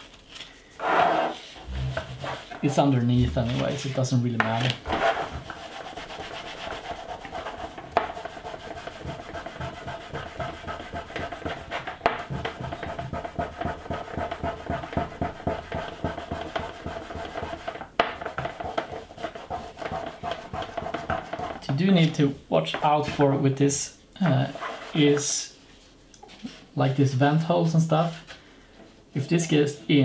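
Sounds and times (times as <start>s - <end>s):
cloth rubbing plastic: 0.0s - 15.4s.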